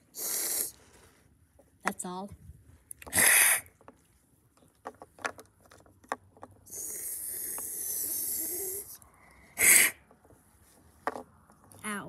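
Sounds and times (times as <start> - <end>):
person hissing like a cat: 0.0 - 0.8, 3.1 - 3.8, 6.7 - 10.0
plastic figurines clicking on wood: 4.6 - 8.1.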